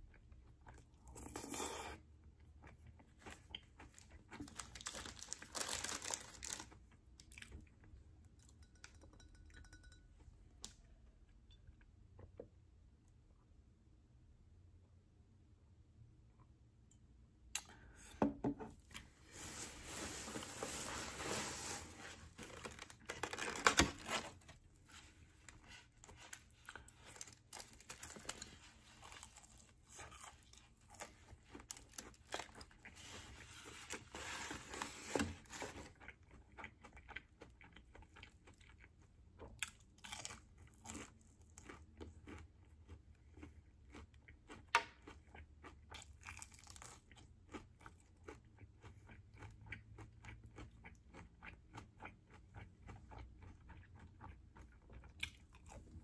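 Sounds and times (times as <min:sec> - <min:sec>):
crunchy fried food chewing: 0:00.0 - 0:08.0, 0:22.0 - 0:56.0.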